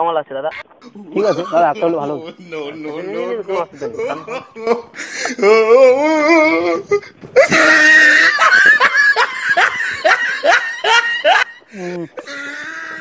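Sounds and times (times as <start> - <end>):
wavering vocal note: 0.5 - 7.6
person laughing: 0.8 - 13.0.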